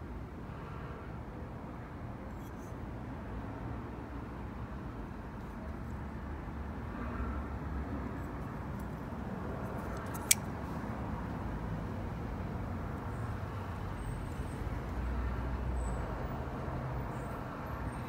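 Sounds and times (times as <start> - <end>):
knife blade snapping into lock: 9.9 - 10.5.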